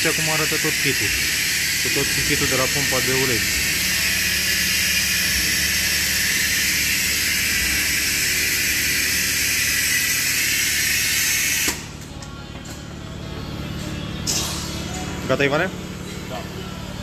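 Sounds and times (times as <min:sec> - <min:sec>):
compressed air hissing: 0:00.0 - 0:11.9.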